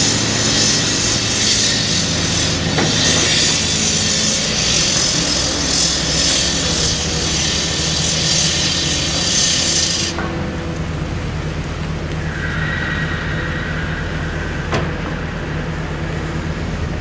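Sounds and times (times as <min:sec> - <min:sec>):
pulsing hydraulic hiss: 0:00.0 - 0:10.3
excavator diesel engine hum: 0:00.0 - 0:17.0.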